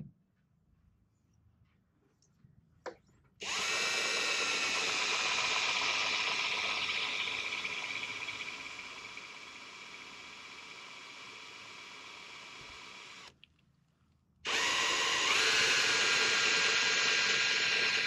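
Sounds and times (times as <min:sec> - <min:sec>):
cordless drill boring into plastic: 0:03.4 - 0:13.3, 0:14.5 - 0:18.0.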